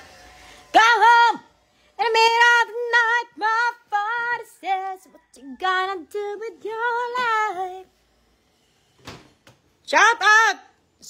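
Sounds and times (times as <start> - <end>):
woman singing unaccompanied: 0.6 - 7.9.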